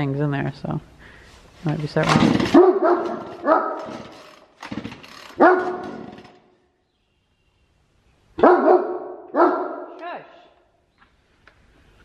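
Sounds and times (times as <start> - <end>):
dog barking: 2.5 - 4.0, 5.4 - 6.0, 8.4 - 10.0.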